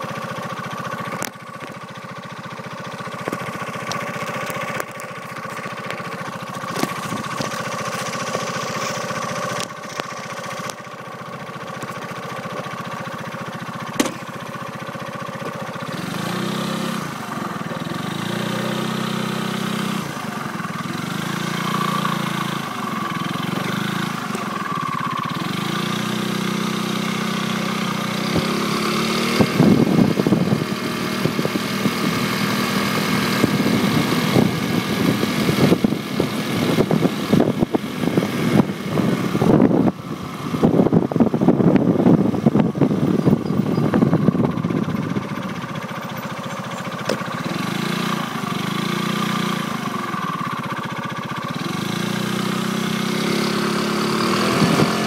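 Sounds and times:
motorcycle engine cruising: 0.0s - 55.0s
wind buffeting microphone: 33.4s - 45.4s.

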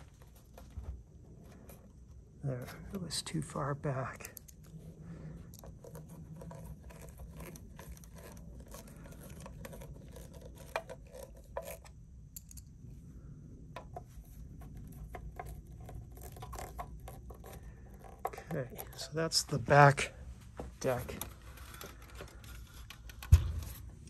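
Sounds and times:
low steady hum: 0.0s - 24.0s
small clicks of parts handled: 11.6s - 12.7s.

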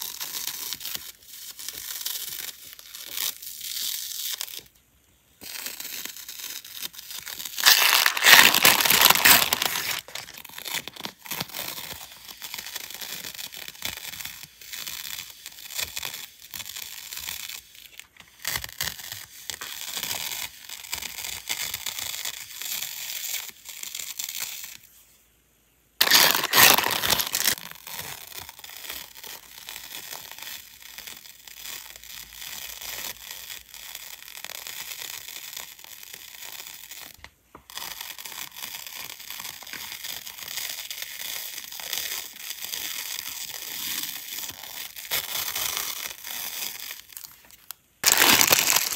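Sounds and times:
plastic film crinkling: 0.0s - 4.8s, 5.4s - 25.0s, 26.0s - 48.9s
tape peeling off roll: 5.4s - 24.9s, 26.0s - 48.9s.

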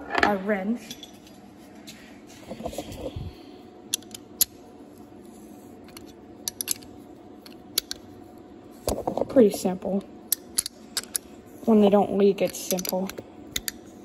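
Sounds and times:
faint steady hum: 0.0s - 14.0s
metal tools clinking: 0.8s - 1.4s.

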